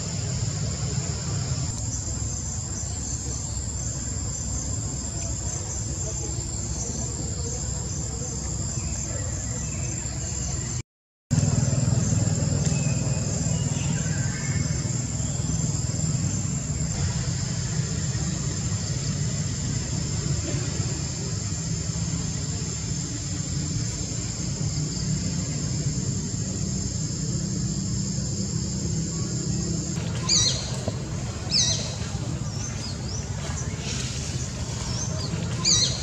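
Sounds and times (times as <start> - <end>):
insects droning: 0.0 - 36.0
faint chirps: 11.4 - 36.0.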